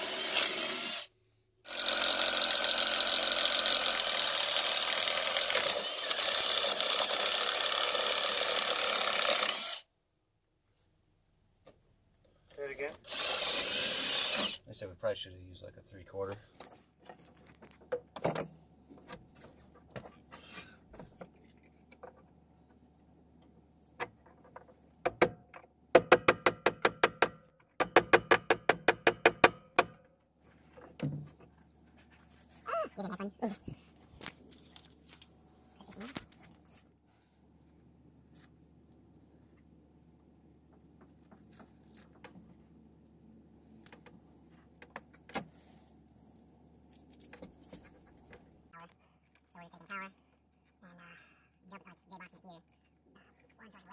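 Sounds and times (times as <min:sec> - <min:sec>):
electrical cable being handled: 0:34.1 - 0:36.9.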